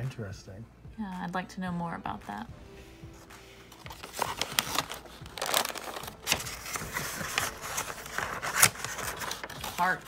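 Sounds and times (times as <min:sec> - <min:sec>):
tissue paper crinkling: 0:03.2 - 0:10.0.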